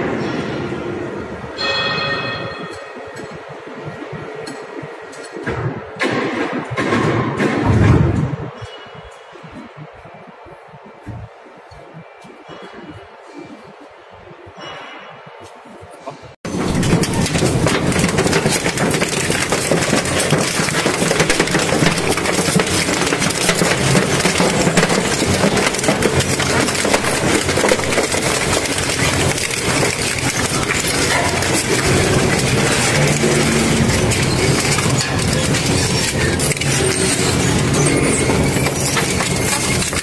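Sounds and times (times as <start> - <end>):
industrial crusher engine droning: 16.5 - 40.0
material crunching and cracking: 16.6 - 40.0.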